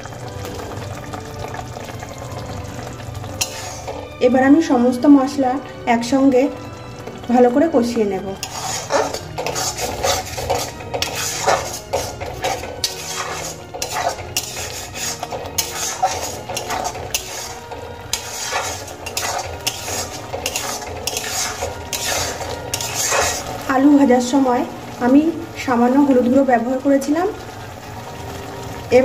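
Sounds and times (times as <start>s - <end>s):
metal spatula scraping a pan: 3.4s - 4.2s, 8.3s - 23.7s.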